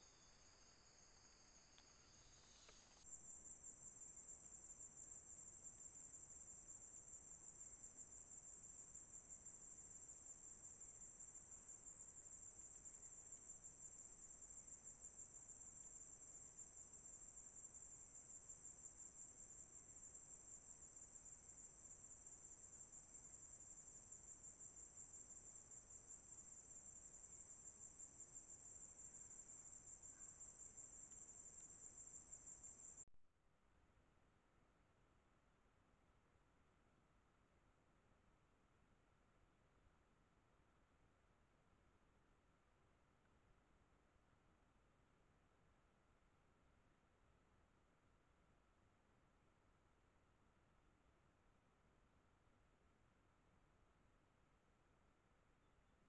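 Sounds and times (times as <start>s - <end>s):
high-pitched insect trill: 0.0s - 33.0s.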